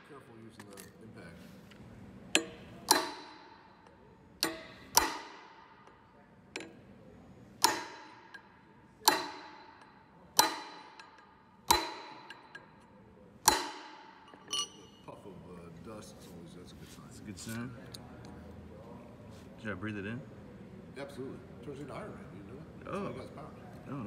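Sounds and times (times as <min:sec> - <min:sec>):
hammer striking metal drift: 0:02.4 - 0:03.8, 0:04.4 - 0:06.0, 0:07.6 - 0:12.7, 0:13.4 - 0:14.8.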